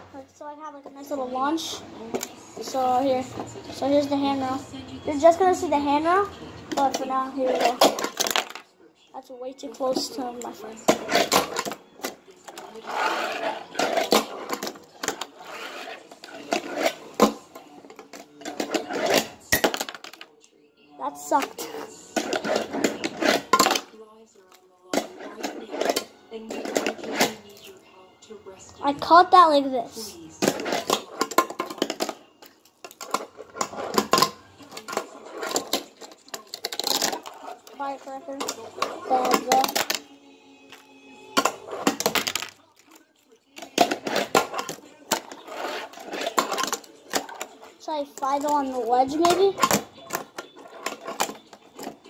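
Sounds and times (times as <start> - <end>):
small wheels rolling: 12.5 - 17.0.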